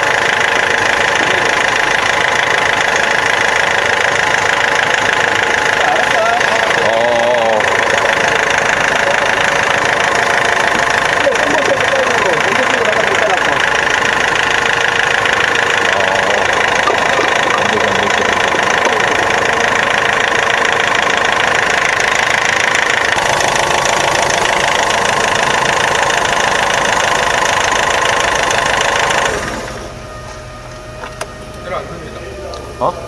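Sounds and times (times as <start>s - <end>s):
diesel engine running: 0.0s - 33.0s
low hum: 12.5s - 23.4s.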